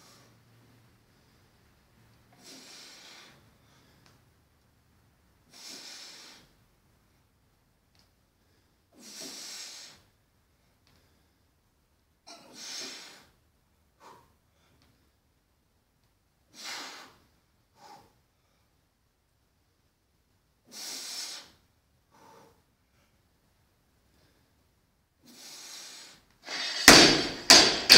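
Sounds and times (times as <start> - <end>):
forceful breathing: 25.6 - 27.9.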